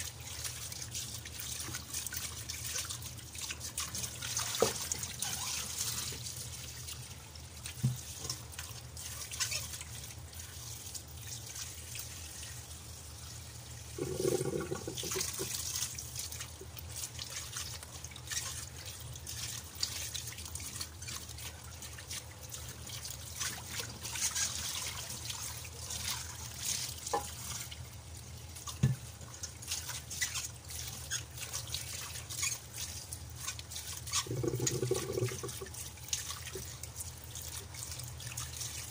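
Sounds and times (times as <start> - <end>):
tap water running into pot: 0.0 - 12.9, 13.5 - 38.9
hands scrubbing under water: 14.0 - 15.7, 33.3 - 35.8.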